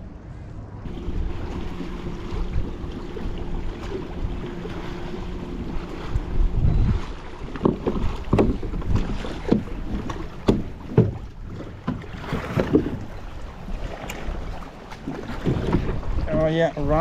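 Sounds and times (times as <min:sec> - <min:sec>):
water: 0:00.0 - 0:17.0
wind: 0:00.0 - 0:17.0
knocks against plastic kayak hull: 0:07.5 - 0:11.2.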